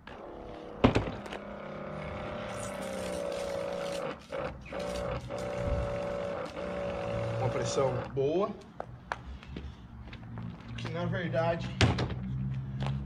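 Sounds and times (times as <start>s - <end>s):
pump motor humming: 0.0s - 8.2s.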